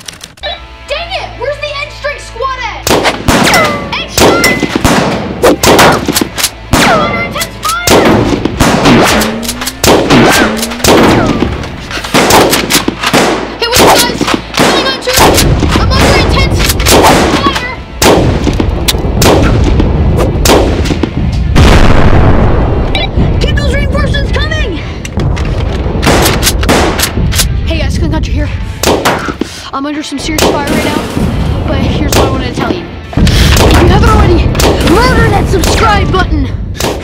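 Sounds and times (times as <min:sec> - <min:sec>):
rapid gunfire: 0:02.8 - 0:22.3, 0:26.0 - 0:27.5, 0:28.8 - 0:29.4, 0:33.2 - 0:36.2, 0:36.8 - 0:37.0
deep explosion rumble: 0:09.8 - 0:12.4, 0:14.5 - 0:28.9, 0:30.4 - 0:36.8.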